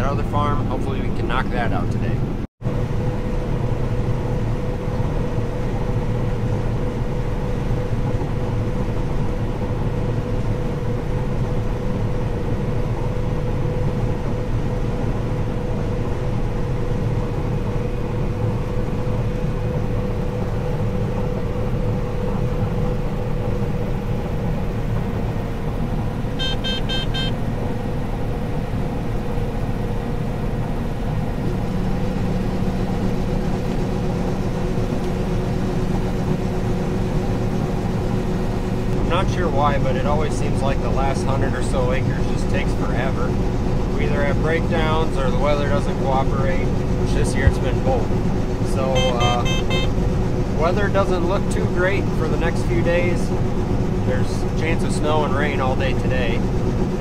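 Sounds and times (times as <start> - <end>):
auger low hum: 0.0 - 57.0
combine harvester hum: 0.0 - 57.0
rapid beeps: 26.4 - 27.4, 49.0 - 49.9.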